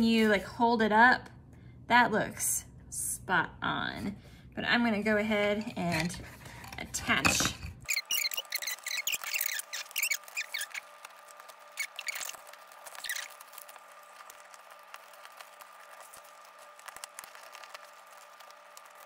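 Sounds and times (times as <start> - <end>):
faint steady hum: 0.0 - 7.9.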